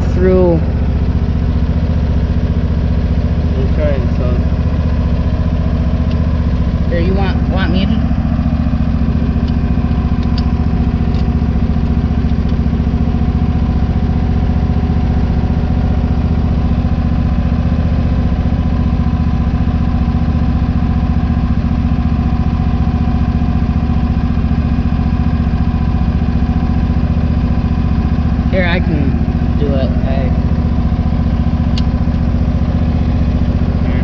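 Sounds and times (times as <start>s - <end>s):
engine idling: 0.0s - 34.0s.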